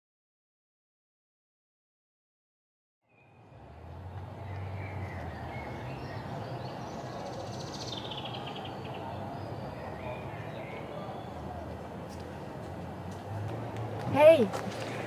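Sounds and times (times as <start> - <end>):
birds singing: 3.1 - 11.8.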